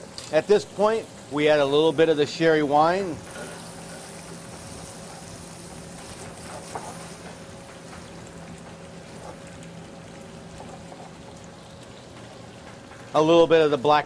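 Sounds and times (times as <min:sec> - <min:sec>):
wine being poured: 0:00.0 - 0:13.8
steady low hum: 0:00.0 - 0:14.0
food sizzling in a pan: 0:02.3 - 0:08.0.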